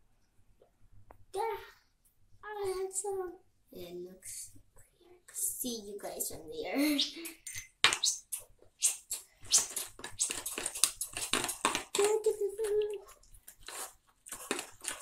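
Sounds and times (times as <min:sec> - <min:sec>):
spoon and plastic tubs clicking: 0:07.3 - 0:08.1.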